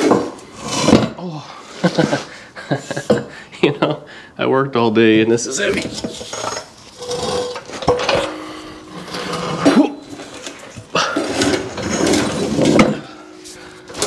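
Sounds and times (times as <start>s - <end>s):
metal clanks and scrapes: 0.0s - 1.2s, 5.6s - 14.0s.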